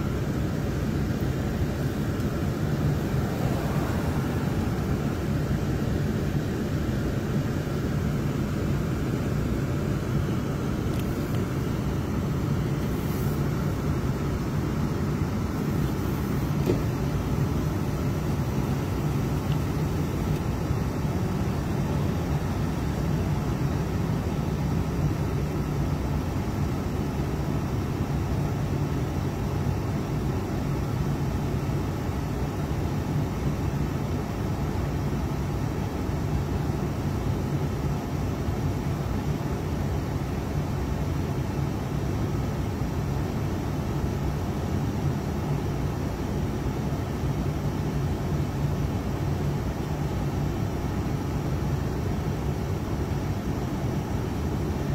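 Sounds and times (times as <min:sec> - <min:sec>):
vehicle engine and road noise: 0:00.0 - 0:54.9.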